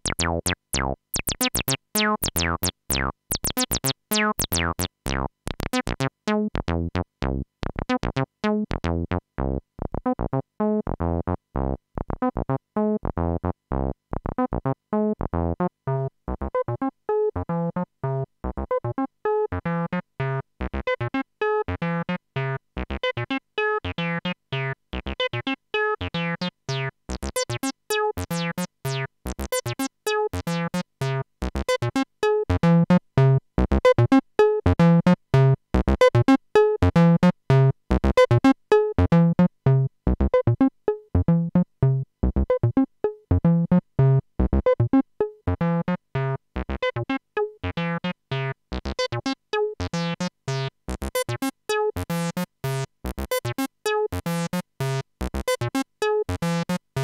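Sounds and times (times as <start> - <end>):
synthesizer bass line: 0.0 - 7.1.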